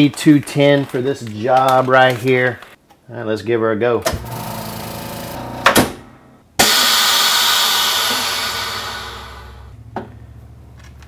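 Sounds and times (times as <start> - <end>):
vacuum pump running: 6.6 - 9.7
loud rush of venting air: 6.6 - 9.8.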